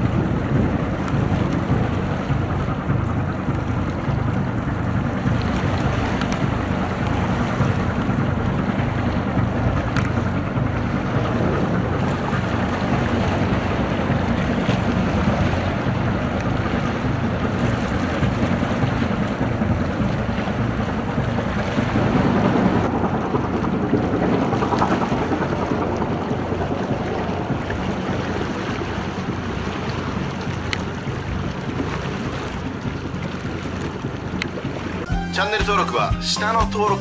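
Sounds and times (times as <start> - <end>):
wind rushing on microphone: 0.0 - 35.1
boat diesel engine drone: 0.0 - 37.0
sea wash: 0.0 - 37.0.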